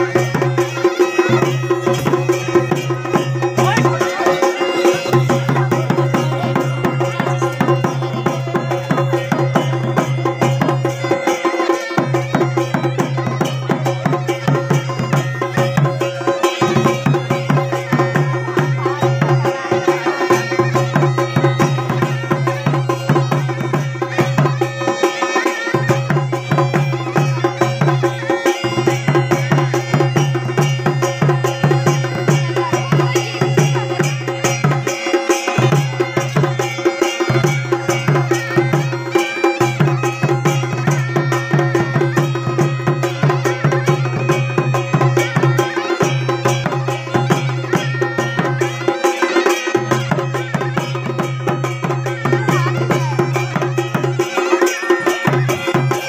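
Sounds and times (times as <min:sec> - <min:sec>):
bagpipe drone and melody: 0:00.0 - 0:56.0
fast drum beat: 0:25.9 - 0:56.0.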